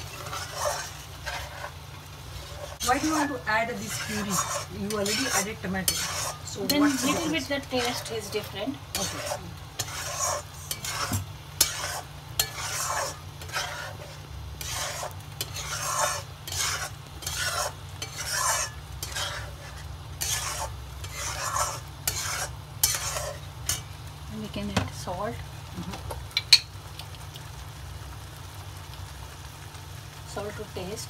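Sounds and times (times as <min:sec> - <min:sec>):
metal spatula scraping frying pan: 0:00.0 - 0:24.0.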